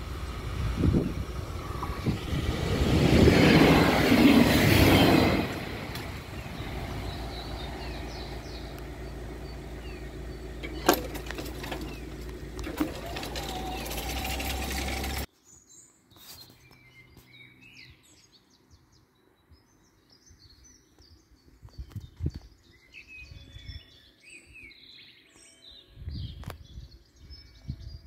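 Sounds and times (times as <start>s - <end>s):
train wheels on rails passing: 0.0s - 7.9s.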